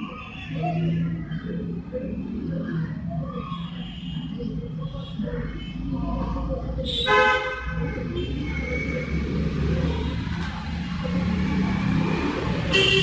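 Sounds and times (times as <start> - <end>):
road traffic: 0.0 - 13.0
vehicle horn honking: 12.7 - 13.0.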